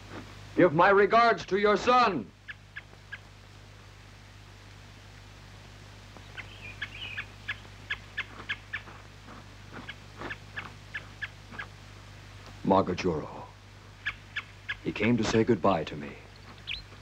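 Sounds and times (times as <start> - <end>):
bird chirping: 6.2 - 9.0, 9.7 - 11.8, 14.0 - 15.0, 15.9 - 17.0.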